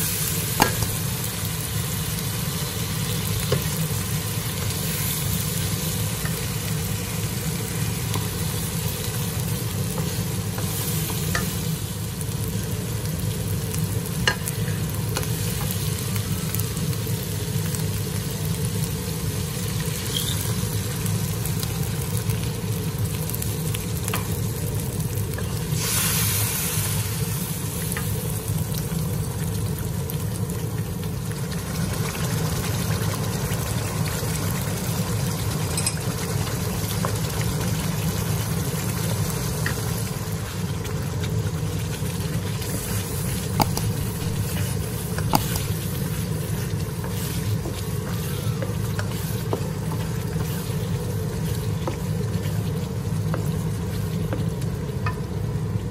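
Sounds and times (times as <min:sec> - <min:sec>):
paste sizzling in a wok: 0:00.0 - 0:55.9
spatula tapping a pan: 0:00.5 - 0:01.0, 0:43.5 - 0:45.9
steady low hum: 0:42.5 - 0:55.0.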